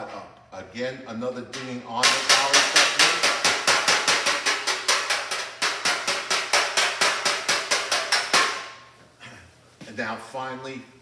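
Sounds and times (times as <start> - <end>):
hammer tapping steel panel: 1.6 - 8.8.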